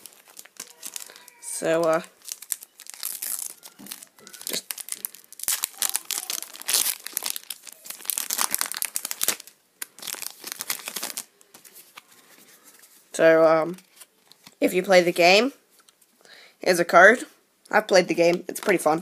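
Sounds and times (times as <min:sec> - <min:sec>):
foil wrapper crinkling and tearing: 0:00.0 - 0:12.1.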